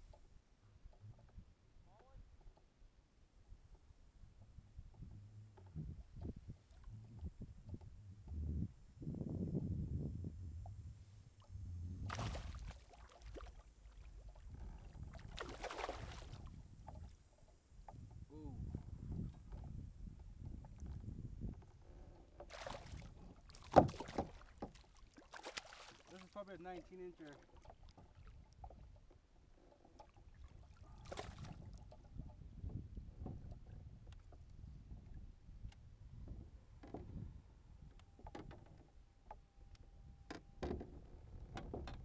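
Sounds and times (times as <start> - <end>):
water lapping around kayak: 0.0 - 8.9, 10.3 - 42.0
wind rumble on microphone: 3.5 - 24.7, 30.4 - 39.0, 39.6 - 42.0
water splashing: 12.1 - 14.3, 15.0 - 16.5, 22.4 - 28.9, 30.0 - 31.9.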